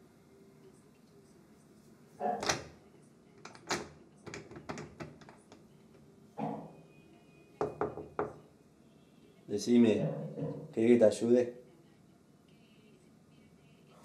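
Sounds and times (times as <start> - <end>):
knocking on door: 7.6 - 8.4.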